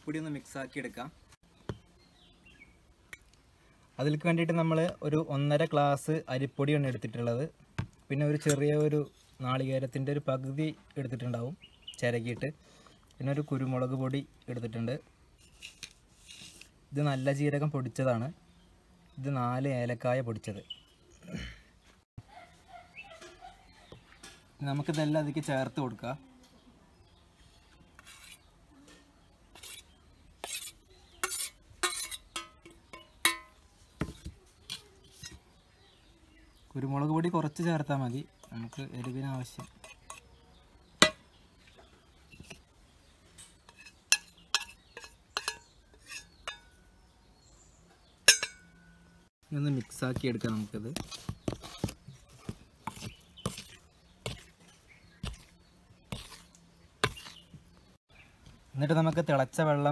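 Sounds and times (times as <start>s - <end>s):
spoon scraping metal bowl: 28.0s - 28.5s, 29.5s - 33.5s, 38.3s - 40.4s, 43.4s - 46.8s, 50.9s - 57.5s.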